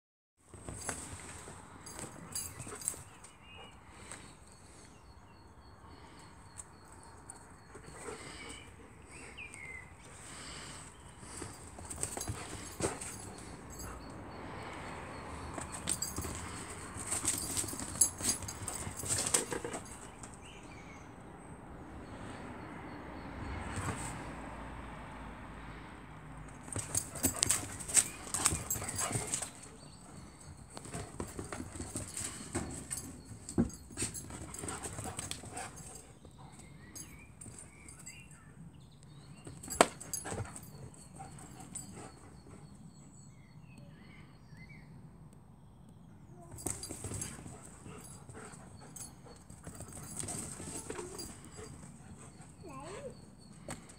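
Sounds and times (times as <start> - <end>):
dogs scuffling and clicking: 0.5 - 3.4, 11.2 - 14.1, 15.4 - 20.6, 26.5 - 38.2, 39.4 - 42.2, 46.5 - 52.6.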